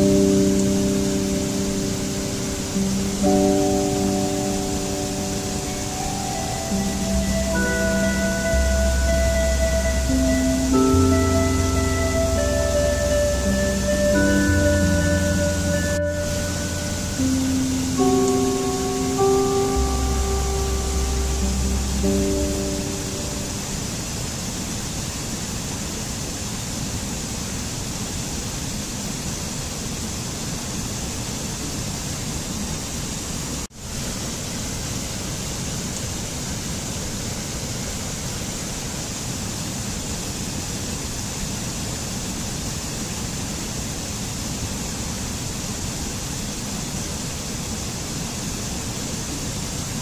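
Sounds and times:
stream cascading over rocks: 0.0 - 50.0.

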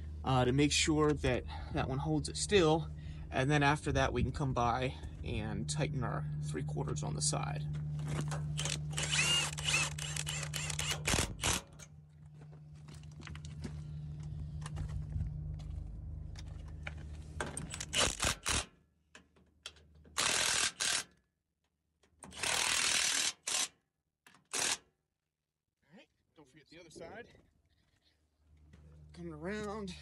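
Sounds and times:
steady low hum: 0.0 - 18.6, 26.4 - 30.0
impact wrench bursts: 8.5 - 11.8, 17.6 - 18.7, 20.2 - 21.1, 22.3 - 23.7, 24.4 - 24.8.

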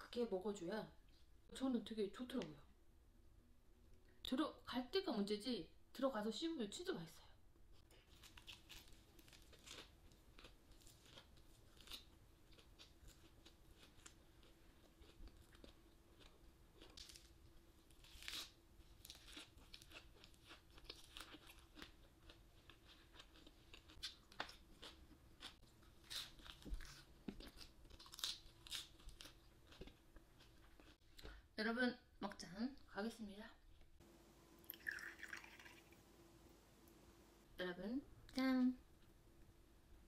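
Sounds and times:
chewing crisp lettuce: 8.0 - 31.0
faint steady hum: 33.4 - 40.0.

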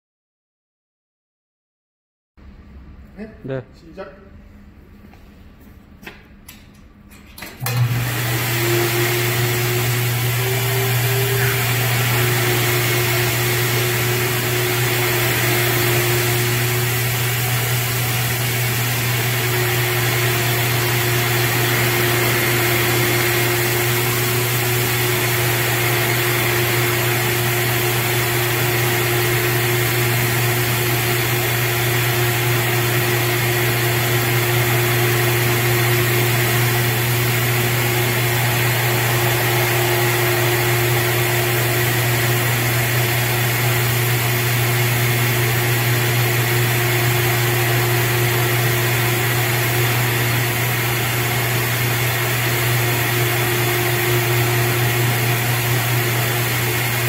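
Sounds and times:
washing machine motor hum: 6.9 - 57.0
high thin whine: 36.9 - 43.4.

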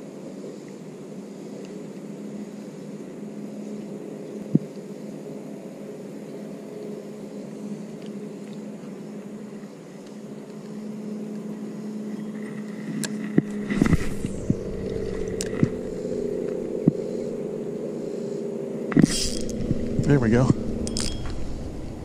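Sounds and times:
rush of noise: 11.0 - 22.0
fishing reel whirring: 18.9 - 21.8.

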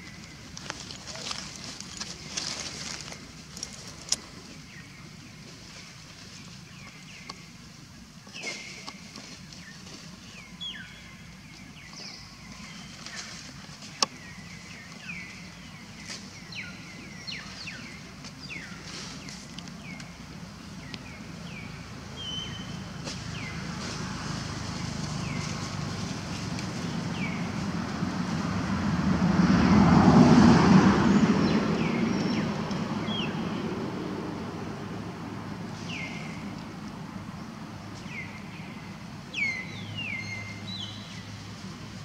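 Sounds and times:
vehicle passing: 21.4 - 37.8.

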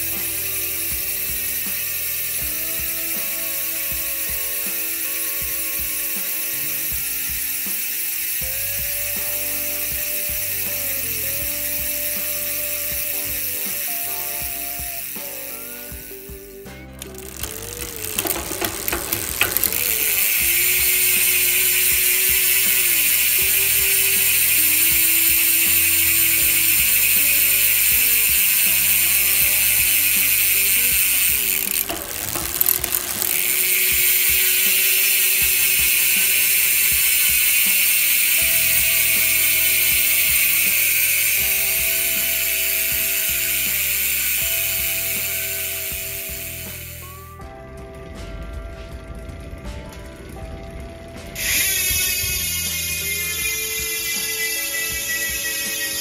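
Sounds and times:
bicycle hub buzzing: 0.0 - 47.4, 48.0 - 56.0.

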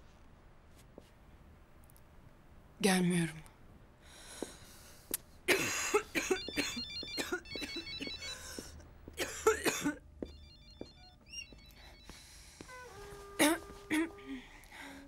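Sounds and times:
phone ringtone beeping: 6.3 - 8.8, 10.2 - 13.6.

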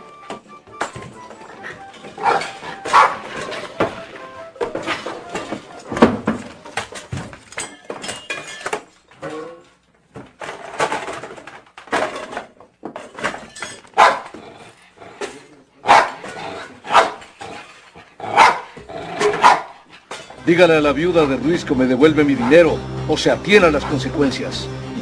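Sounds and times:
dog whining: 0.6 - 5.4
small dog barking: 2.2 - 3.2, 14.0 - 14.3, 15.9 - 16.2, 16.9 - 17.2, 18.3 - 18.7, 19.4 - 19.8.

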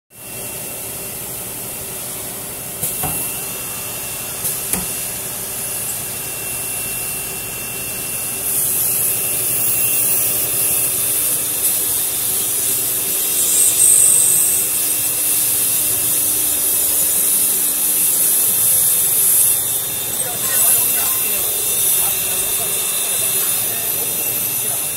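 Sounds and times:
saw cutting metal hiss: 8.4 - 24.9.

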